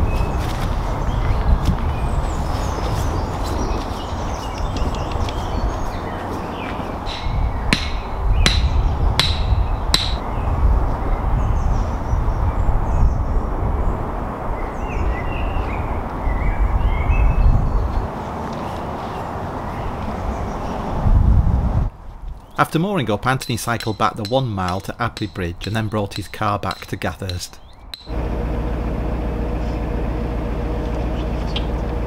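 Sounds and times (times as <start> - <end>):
birds chirping faintly: 0.0 - 14.0, 22.3 - 28.2
low wind rumble: 0.0 - 26.9
ringing metallic strikes: 7.1 - 10.2, 28.0 - 28.2.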